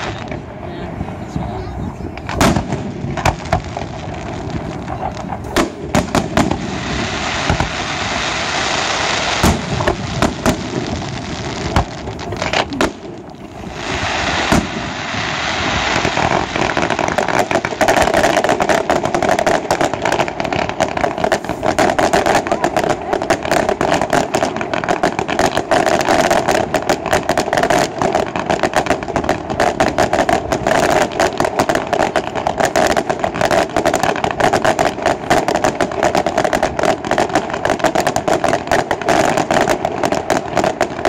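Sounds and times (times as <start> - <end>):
hiss and crackle of fireworks: 0.0 - 41.0
firework shells bursting: 2.1 - 41.0
rapid dense crackling: 9.4 - 14.7.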